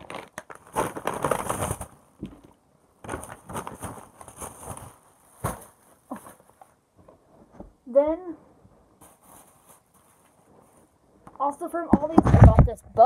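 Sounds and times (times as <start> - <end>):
shopping bag rustling: 0.0 - 2.0, 3.0 - 6.6, 9.0 - 10.8.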